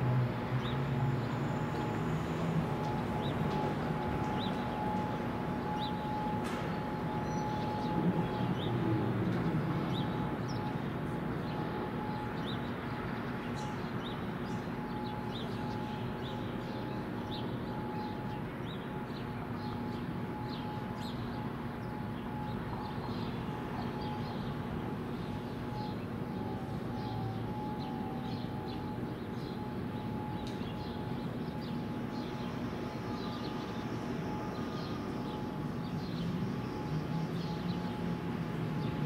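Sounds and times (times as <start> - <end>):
distant warning sirens: 0.0 - 39.0.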